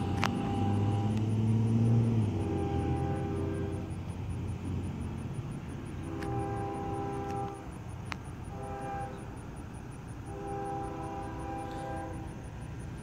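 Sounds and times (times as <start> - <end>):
train air horn chord: 0.0 - 4.0, 6.0 - 7.7, 8.5 - 9.4, 10.3 - 12.4
low train rumble: 0.0 - 13.0.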